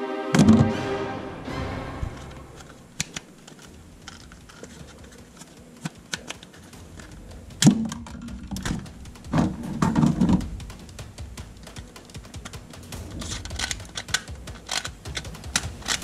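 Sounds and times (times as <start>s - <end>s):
plastic toy guns clattering: 2.6s - 8.8s, 13.2s - 16.0s.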